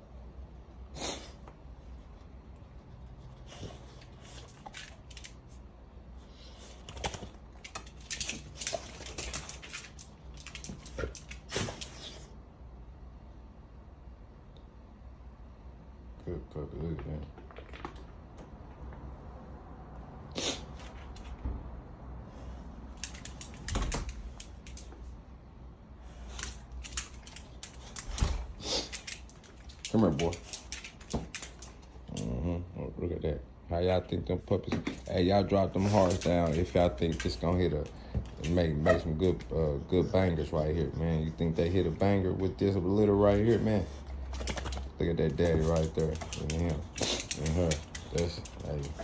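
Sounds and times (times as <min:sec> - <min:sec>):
dog claws clicking on hard floor: 0:03.6 - 0:05.6, 0:06.7 - 0:12.2, 0:17.3 - 0:18.2, 0:22.9 - 0:25.1, 0:26.2 - 0:32.4, 0:34.6 - 0:39.5, 0:43.3 - 0:49.0.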